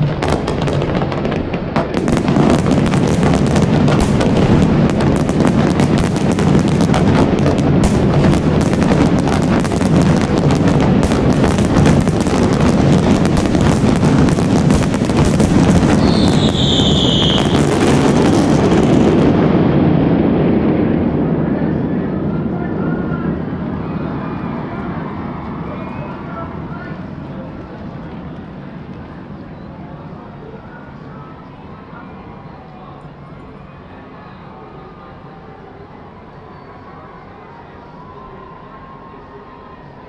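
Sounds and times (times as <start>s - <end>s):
falling firework whistle: 0.0s - 19.4s
fireworks crackling and banging: 0.0s - 23.3s.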